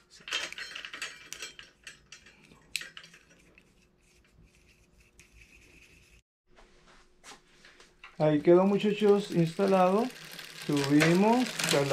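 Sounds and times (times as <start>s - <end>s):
bicycle chain rattling: 8.2s - 11.9s.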